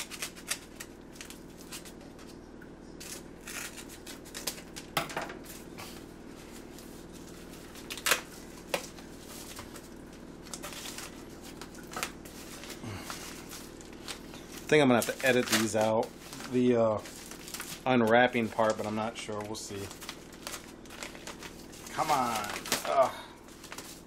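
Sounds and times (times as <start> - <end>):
paper crinkling and rustling: 6.4 - 24.0.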